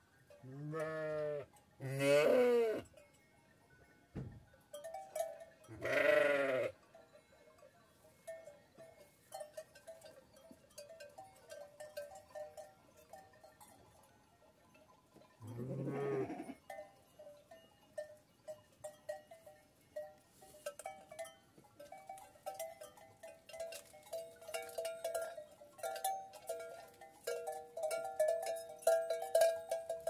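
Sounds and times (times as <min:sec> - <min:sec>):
sheep bells clanking: 0:00.0 - 0:30.0
sheep bleating: 0:00.5 - 0:02.8, 0:05.8 - 0:06.8, 0:15.5 - 0:16.6.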